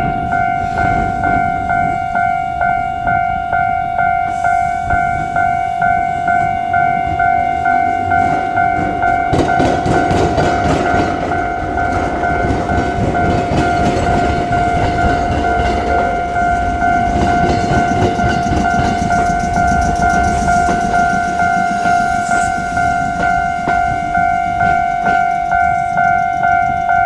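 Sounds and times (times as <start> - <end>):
level crossing warning bell: 0.0 - 27.0
train wheels rumbling and knocking: 0.0 - 27.0.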